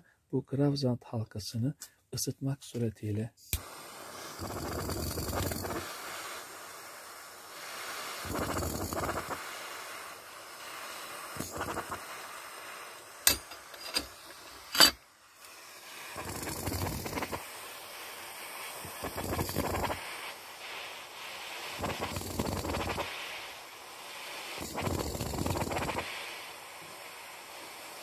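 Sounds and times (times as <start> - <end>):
jet torch hissing: 3.4 - 28.0.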